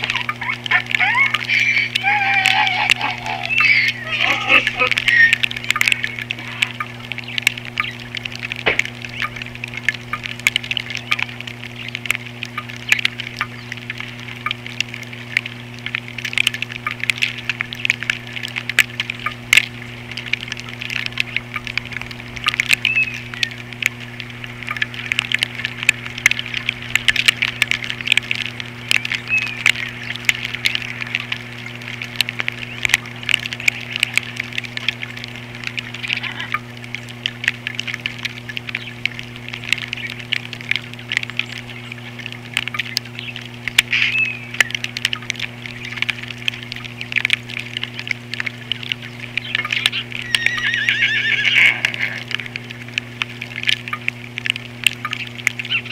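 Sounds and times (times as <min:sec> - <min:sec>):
loud wavering bird call: 0:00.0 - 0:06.8, 0:49.9 - 0:52.3
birds chirping and chattering: 0:00.0 - 0:09.6, 0:10.8 - 0:14.6, 0:22.6 - 0:23.8, 0:28.4 - 0:35.0, 0:35.6 - 0:46.8, 0:47.9 - 0:52.5
low electrical hum: 0:00.0 - 0:55.9.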